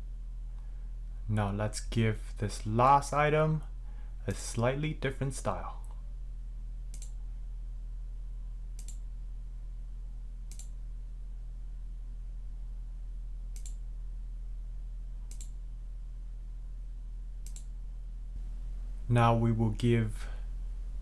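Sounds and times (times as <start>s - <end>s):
steady low hum: 0.0s - 21.0s
computer mouse clicking: 6.9s - 7.2s, 8.8s - 9.0s, 10.5s - 10.8s, 13.5s - 13.8s, 15.3s - 15.6s, 17.4s - 17.7s.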